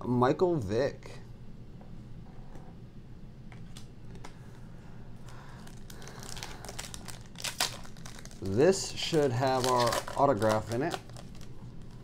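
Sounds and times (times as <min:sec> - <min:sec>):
plastic wrapper crinkling: 0:05.2 - 0:12.0.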